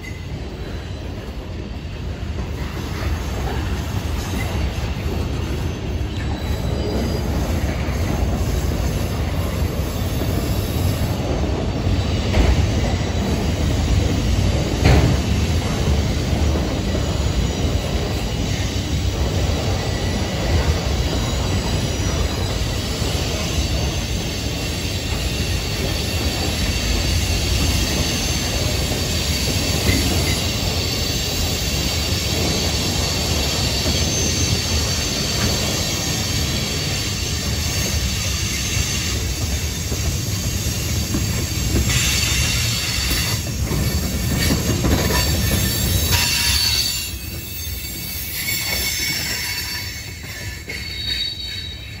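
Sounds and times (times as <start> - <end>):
freight cars rumbling on rails: 0.0 - 52.0
high wheel squeal: 2.8 - 11.2, 19.8 - 52.0.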